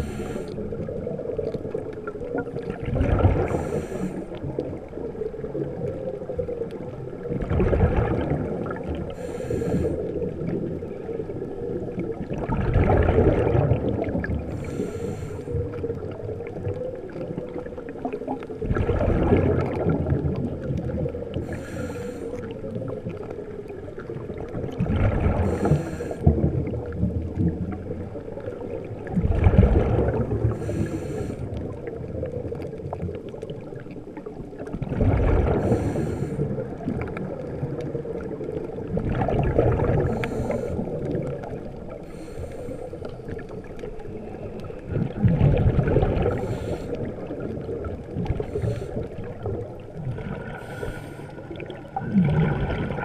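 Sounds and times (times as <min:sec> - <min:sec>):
regulator inhale hiss: 0:00.0 - 0:00.8, 0:03.5 - 0:04.4, 0:09.1 - 0:10.3, 0:14.5 - 0:15.7, 0:21.4 - 0:22.5, 0:25.4 - 0:26.3, 0:30.5 - 0:31.7, 0:35.6 - 0:36.6, 0:40.0 - 0:41.1, 0:42.0 - 0:43.2, 0:46.2 - 0:47.1, 0:48.4 - 0:49.2, 0:50.5 - 0:51.5
exhaled bubbles rumbling: 0:00.0 - 0:53.0
faint steady hum: 0:00.0 - 0:53.0.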